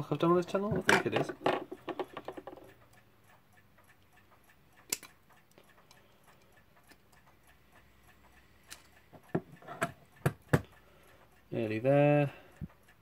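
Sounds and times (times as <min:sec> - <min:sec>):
clock ticking rapidly: 0:00.0 - 0:13.0
sharp clicks of metal movement: 0:04.8 - 0:05.2.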